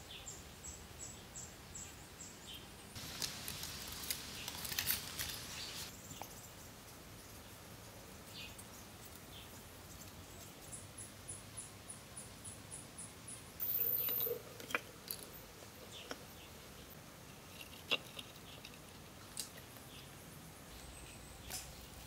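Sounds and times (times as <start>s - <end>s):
bamboo pieces clicking: 3.0s - 5.8s, 17.4s - 19.9s.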